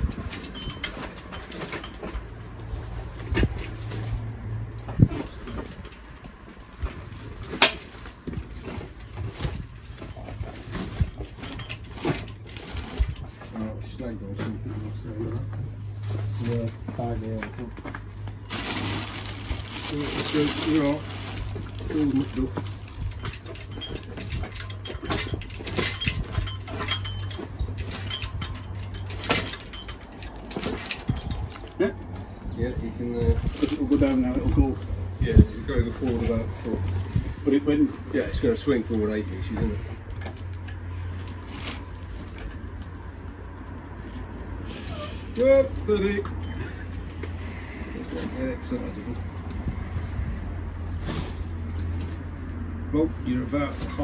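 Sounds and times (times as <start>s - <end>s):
metal clinks and knocks: 0.0s - 32.6s, 45.0s - 47.5s.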